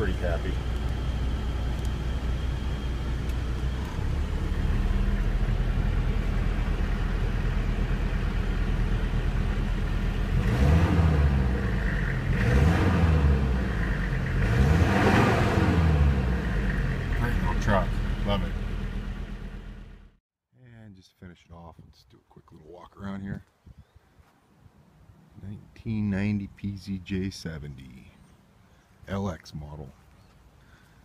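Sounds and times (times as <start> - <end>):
diesel engine idling and revving: 0.0 - 20.2.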